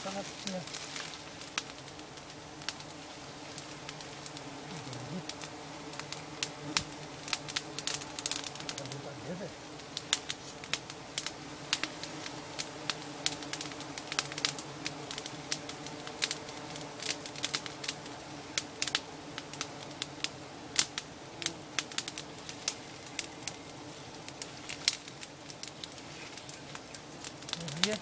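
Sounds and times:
sharp crackles and clicks: 0.0s - 9.1s, 9.8s - 28.0s
bees humming: 0.0s - 28.0s.

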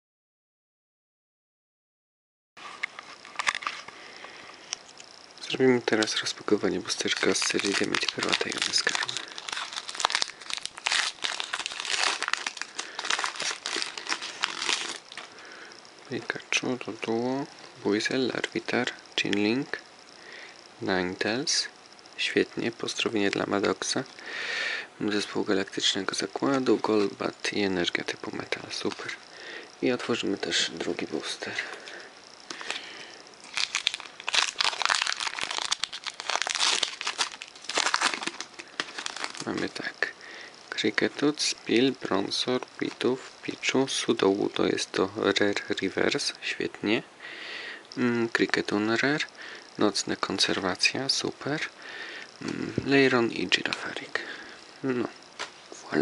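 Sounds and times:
foil wrapper crinkling and tearing: 6.8s - 15.3s, 32.5s - 39.8s.

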